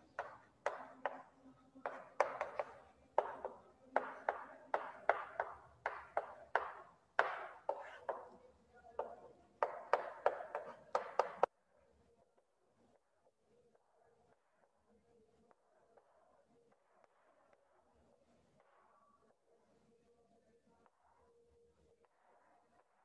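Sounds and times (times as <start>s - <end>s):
chalk tapping and scratching on chalkboard: 0.2s - 8.4s, 9.0s - 11.5s.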